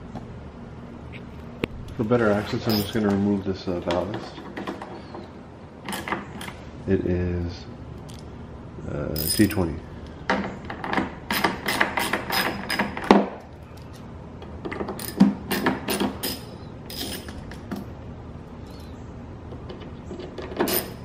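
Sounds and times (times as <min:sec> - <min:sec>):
ratcheting driver clicking: 0:02.6 - 0:03.2.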